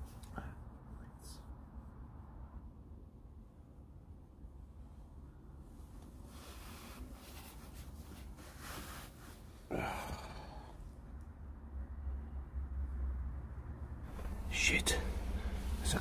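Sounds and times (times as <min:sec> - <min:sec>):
car engine rumble: 0:04.5 - 0:16.0
man breathing out heavily: 0:09.7 - 0:10.8
man sighing: 0:09.7 - 0:10.8.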